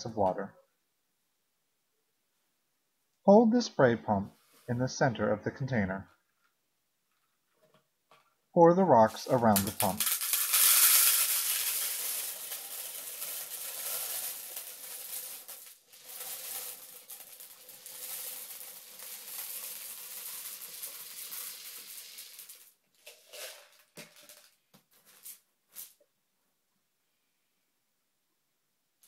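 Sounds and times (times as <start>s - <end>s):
gravel pouring onto plastic: 9.4s - 24.5s.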